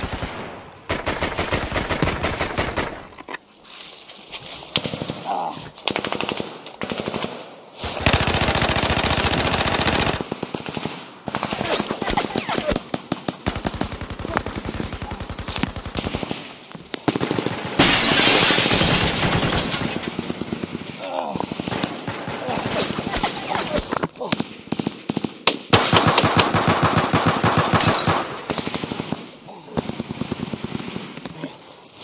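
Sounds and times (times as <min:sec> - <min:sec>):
automatic gunfire: 0:25.7 - 0:29.2.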